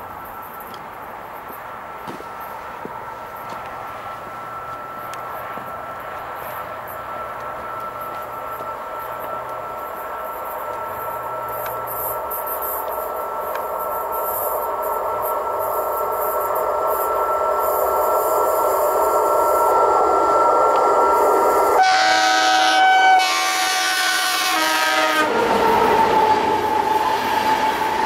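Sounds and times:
train hum and rail noise: 0.0s - 28.0s
locomotive horn chord: 21.8s - 25.4s.

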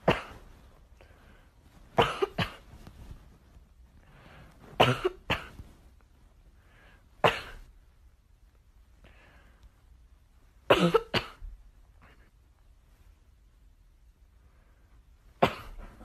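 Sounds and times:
person coughing: 0.0s - 0.5s, 2.0s - 2.7s, 4.8s - 5.6s, 7.2s - 7.7s, 10.7s - 11.5s, 15.4s - 16.0s.

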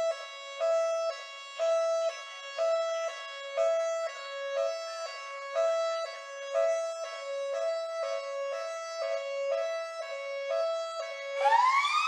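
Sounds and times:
police siren two-tone hi-lo: 7.6s - 12.0s.

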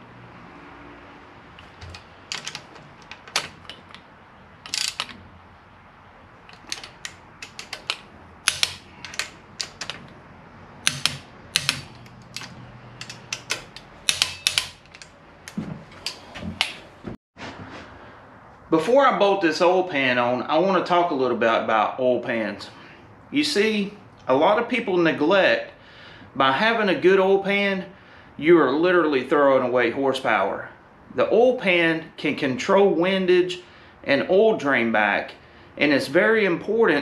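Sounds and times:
socket ratchet clicking: 1.6s - 5.2s, 6.4s - 10.2s, 10.8s - 16.8s.

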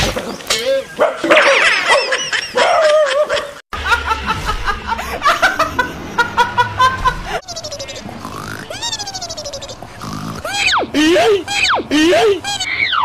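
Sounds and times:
woman laughing hard: 1.5s - 8.0s, 10.5s - 12.6s
high wavering cries: 7.4s - 13.0s.

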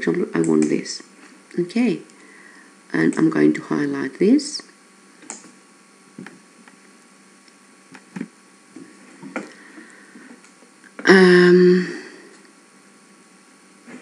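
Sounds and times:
computer mouse clicks: 5.2s - 5.5s.

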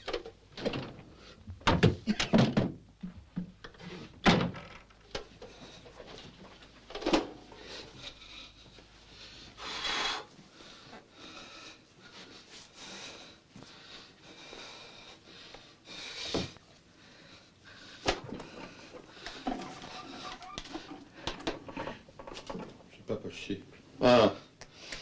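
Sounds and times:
knocks and thuds: 1.6s - 3.6s.

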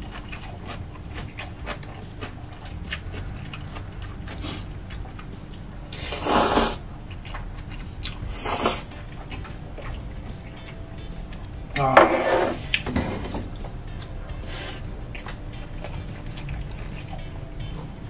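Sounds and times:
wet chewing with mouth clicks: 0.0s - 11.6s, 13.5s - 18.0s
loud noodle slurps: 6.0s - 6.8s, 8.3s - 8.9s.

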